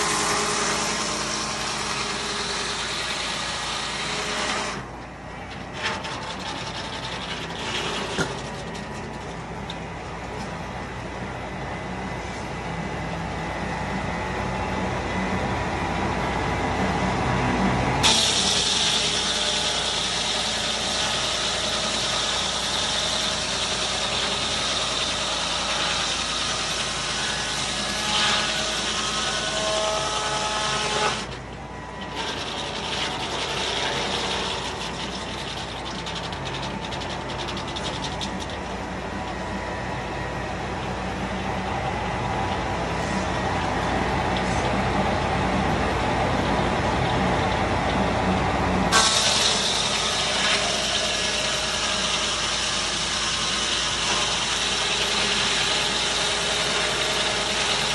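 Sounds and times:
saw blade cutting a log: 0:00.0 - 0:04.9, 0:05.6 - 0:09.4, 0:18.0 - 0:31.4, 0:32.0 - 0:38.8, 0:48.9 - 0:57.9
sawmill running: 0:00.0 - 0:57.9.

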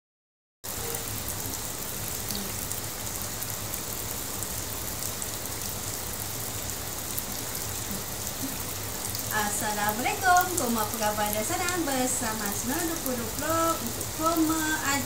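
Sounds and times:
steady hiss: 0:00.7 - 0:15.0.

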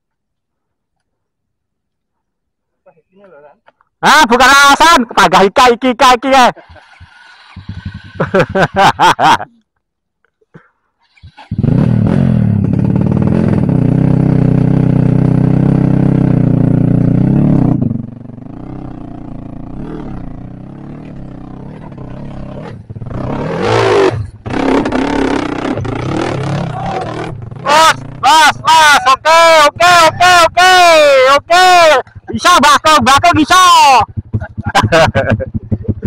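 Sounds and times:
dirt bike engine revving: 0:06.5 - 0:09.4, 0:11.1 - 0:36.0.

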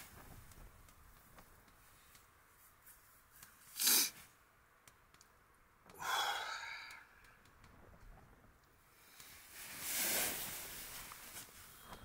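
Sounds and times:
man breathing: 0:05.9 - 0:07.3.

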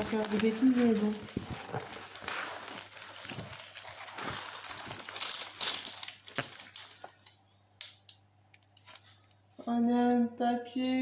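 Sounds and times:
packaging rustling and crinkling: 0:00.0 - 0:07.4.

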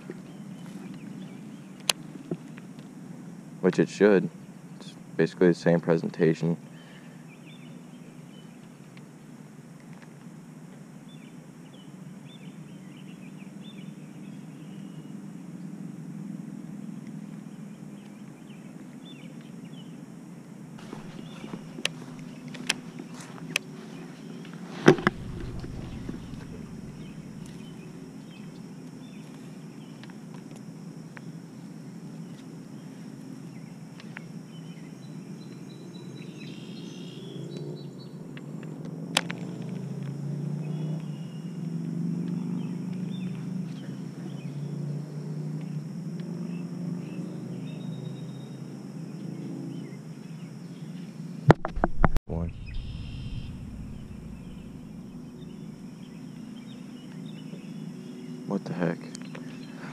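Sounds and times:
steady low hum: 0:20.7 - 0:29.8, 0:51.8 - 0:59.9
faint high chirps: 0:52.3 - 0:57.7.

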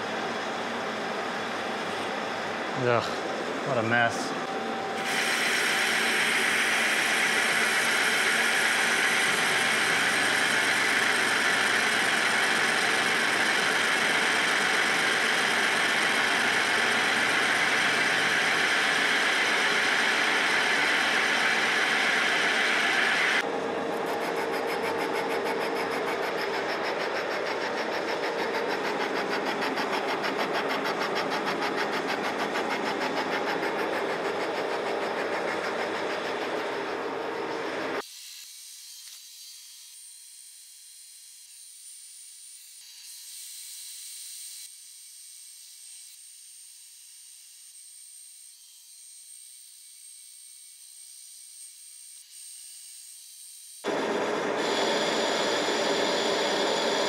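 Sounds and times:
lathe boring cut hum and flutter: 0:00.0 - 0:38.0, 0:53.8 - 0:57.0
metal lathe cutting hiss: 0:00.2 - 0:38.0, 0:53.8 - 0:57.0.

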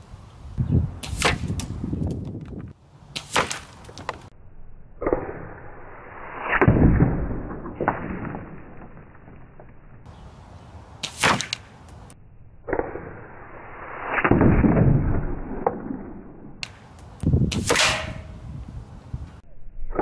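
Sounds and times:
air rifle shots: 0:11.0 - 0:11.7, 0:17.5 - 0:18.3.

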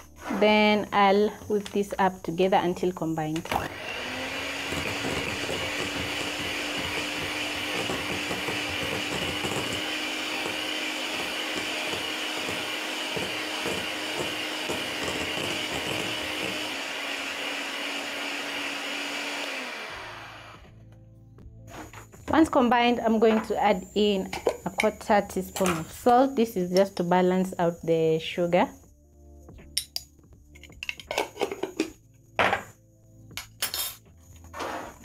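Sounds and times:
electric hand mixer whining: 0:03.4 - 0:20.8.

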